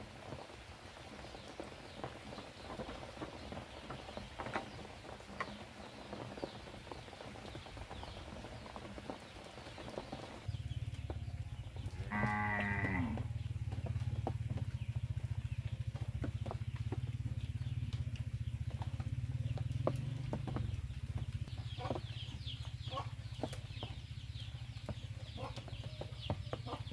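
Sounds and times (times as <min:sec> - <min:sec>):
steady low rumble: 0:10.4 - 0:25.5
farm animal call: 0:11.4 - 0:13.5, 0:21.7 - 0:23.5, 0:25.2 - 0:26.9.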